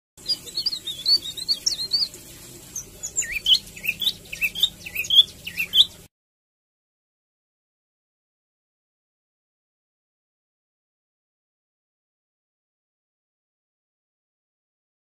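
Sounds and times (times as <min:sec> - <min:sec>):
songbird chirping: 0:00.2 - 0:06.1.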